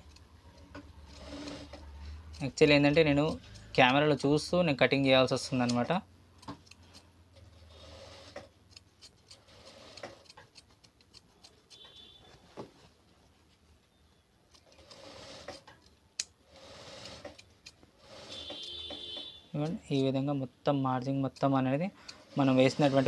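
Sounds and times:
scissors snipping fabric: 0:00.0 - 0:04.2, 0:08.2 - 0:12.0.

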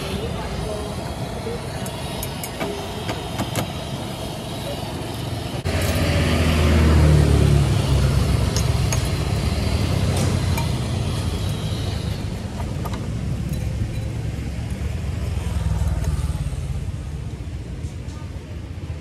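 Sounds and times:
street traffic: 0:00.0 - 0:19.0
vehicle engine passing: 0:05.6 - 0:12.5.

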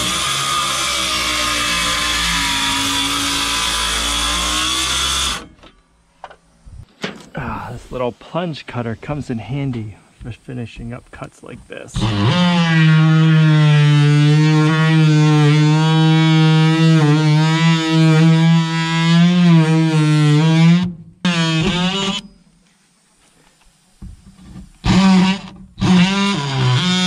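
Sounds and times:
oscillating multi-tool cutting wood: 0:00.0 - 0:05.7, 0:11.9 - 0:22.4, 0:24.0 - 0:27.0.

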